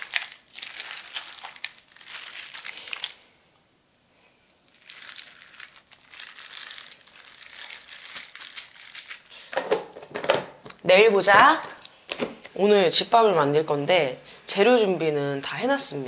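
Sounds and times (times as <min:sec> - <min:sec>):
wet squelching of meat in marinade: 0:00.0 - 0:03.3, 0:04.7 - 0:09.4
disposable gloves crinkling: 0:00.0 - 0:03.4, 0:04.7 - 0:09.6.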